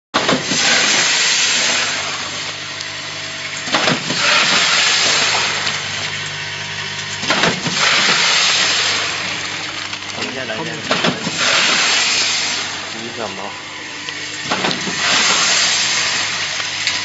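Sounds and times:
packing machine clack: 0:00.2 - 0:02.2, 0:03.6 - 0:06.1, 0:07.1 - 0:13.3, 0:14.3 - 0:17.0
machine hiss: 0:00.2 - 0:02.5, 0:03.7 - 0:06.0, 0:07.2 - 0:09.6, 0:10.4 - 0:13.7, 0:14.4 - 0:16.8
motor hum: 0:00.2 - 0:17.0.

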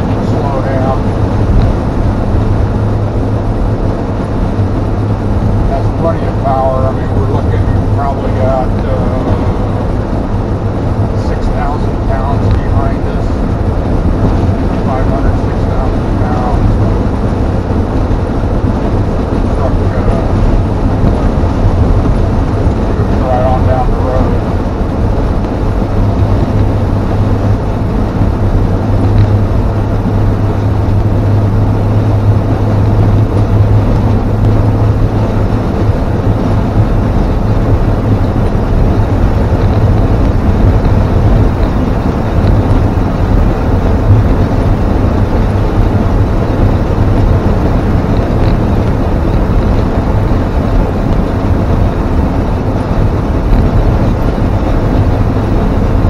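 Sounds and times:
low hum: 0:00.0 - 0:56.0
truck engine drone: 0:00.0 - 0:56.0
tyre and wind rumble: 0:00.0 - 0:56.0.

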